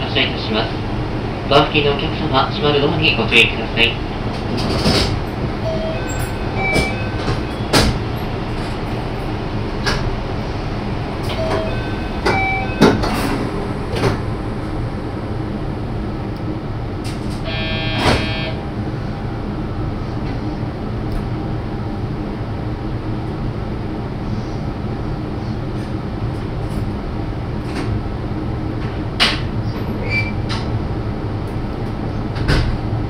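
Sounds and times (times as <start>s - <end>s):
train low hum: 0.0s - 33.0s
sliding doors closing: 4.2s - 15.6s, 17.0s - 18.7s
short pitched tone: 11.3s - 13.0s, 17.5s - 18.7s.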